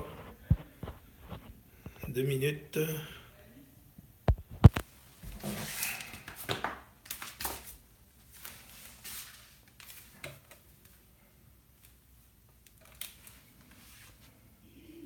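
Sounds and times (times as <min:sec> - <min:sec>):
rustling and shuffling: 0:00.0 - 0:02.2, 0:04.4 - 0:11.1, 0:13.1 - 0:14.6.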